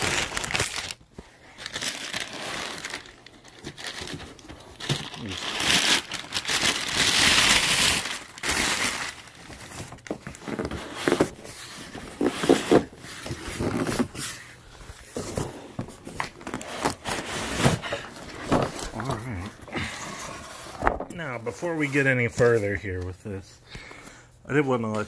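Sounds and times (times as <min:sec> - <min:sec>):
packing paper crumpling: 0:00.0 - 0:19.9.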